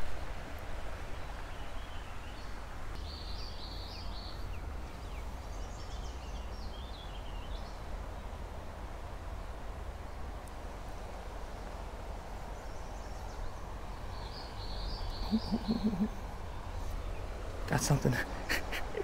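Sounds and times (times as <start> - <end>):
bird chirping: 1.2 - 7.8, 12.5 - 19.0.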